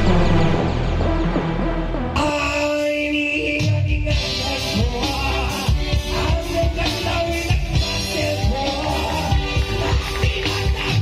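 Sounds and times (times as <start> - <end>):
keyboard: 0.0 - 11.0
electric guitar: 4.1 - 11.0
steady drum beat: 4.1 - 11.0.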